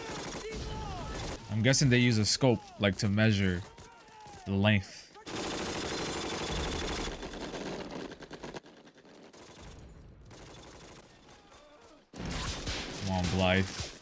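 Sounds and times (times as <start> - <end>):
rifle and machine-gun fire: 0.0 - 1.5, 5.2 - 14.0.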